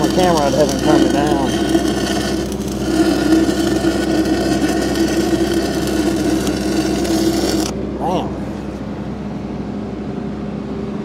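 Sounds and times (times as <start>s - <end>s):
welding arc crackling: 0.0s - 7.8s
machine hum: 0.0s - 11.0s.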